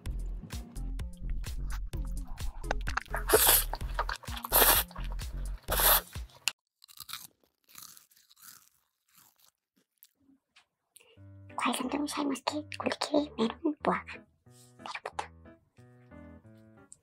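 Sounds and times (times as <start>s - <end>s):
music with deep bass line: 0.0s - 5.7s
crunchy eating: 1.2s - 10.2s.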